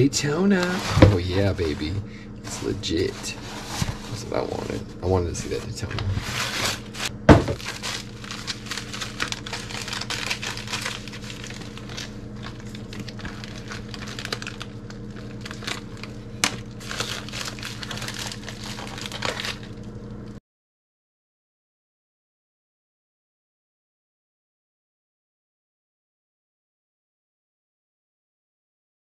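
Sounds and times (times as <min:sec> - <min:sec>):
low hum: 0:00.0 - 0:20.4
plastic bag crinkling: 0:05.5 - 0:19.9.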